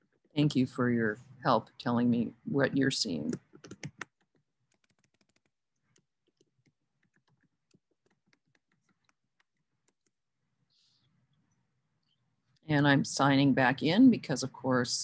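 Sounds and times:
typing on computer keyboard: 3.3 - 10.2.

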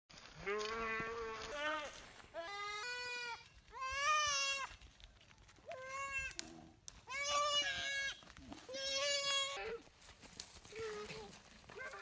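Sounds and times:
goat bleating: 0.4 - 4.8, 7.1 - 9.8.

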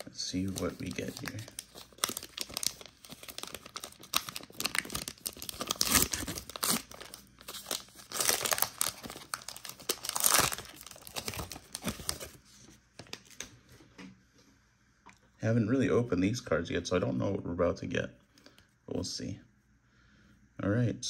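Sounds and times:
plastic wrapper crinkling and tearing: 0.0 - 13.5.

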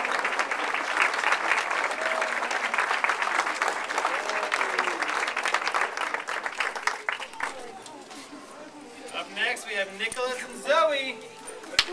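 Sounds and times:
audience clapping: 0.0 - 7.8.

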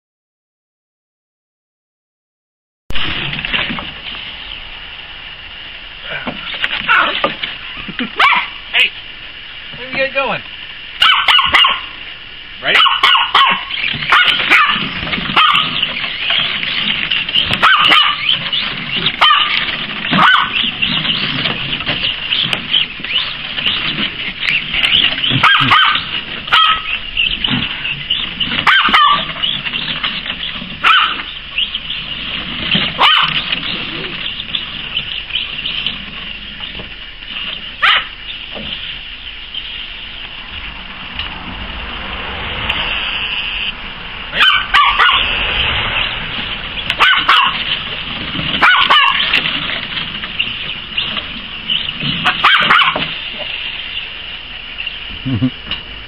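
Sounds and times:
puppy barking: 6.8 - 7.3, 8.2 - 8.6, 11.0 - 12.0, 12.6 - 16.0, 17.5 - 18.4, 19.1 - 20.7, 24.9 - 27.0, 28.5 - 29.6, 30.8 - 31.4, 32.9 - 33.5, 37.8 - 38.2, 44.3 - 45.4, 46.9 - 47.7, 48.6 - 49.4, 52.2 - 53.2
steady high-pitched buzz: 29.3 - 56.0.

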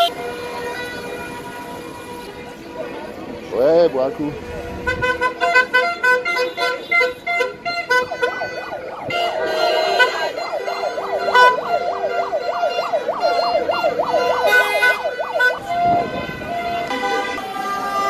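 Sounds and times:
car horns honking: 0.0 - 2.9, 4.7 - 18.0
steady horn tone: 4.7 - 18.0
yelping siren wail: 8.0 - 17.6.

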